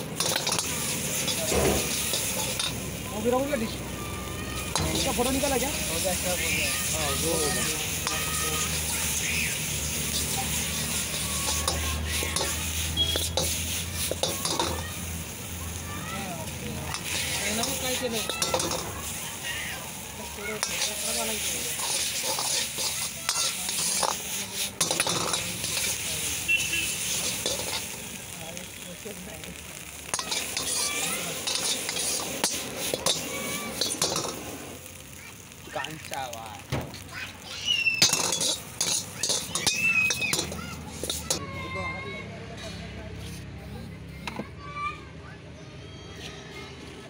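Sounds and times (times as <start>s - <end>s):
gas burner hum and hiss: 0.0s - 41.5s
noodles stir-frying in a wok: 0.0s - 42.3s
metal ladle clanking on wok: 0.1s - 2.8s, 10.1s - 14.8s, 16.9s - 19.0s, 21.7s - 26.1s, 27.1s - 28.0s, 30.0s - 34.5s, 38.0s - 41.4s.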